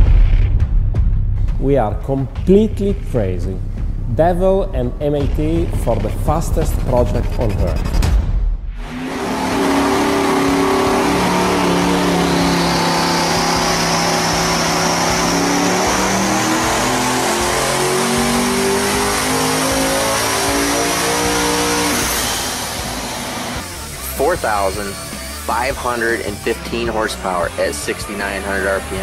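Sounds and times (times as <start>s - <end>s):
high turbo whine: 8.8s - 29.0s
engine running under load: 9.1s - 24.0s.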